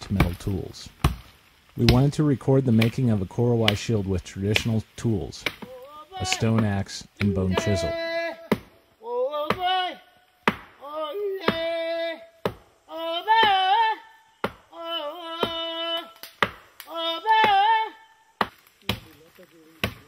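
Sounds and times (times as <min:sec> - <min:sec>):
person singing held notes: 0:05.6 - 0:10.0
axe chopping into wood: 0:10.4 - 0:10.8, 0:16.3 - 0:16.6, 0:19.8 - 0:20.0.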